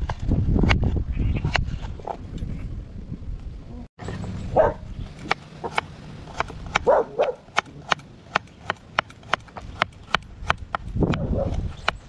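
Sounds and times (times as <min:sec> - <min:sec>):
dog barking: 0:04.5 - 0:04.8, 0:06.8 - 0:07.5.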